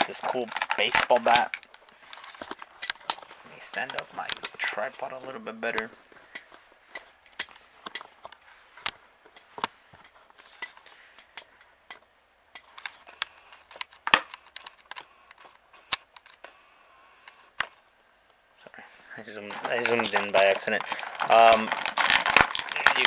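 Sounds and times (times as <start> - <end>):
plastic crinkling: 0.0 - 11.4, 19.3 - 23.0.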